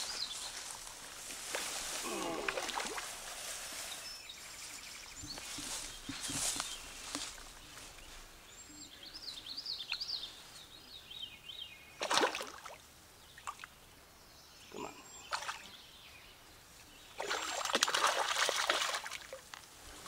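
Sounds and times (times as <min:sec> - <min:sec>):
fish splashing at the surface: 0:02.4 - 0:03.1, 0:12.0 - 0:12.8, 0:17.2 - 0:19.4.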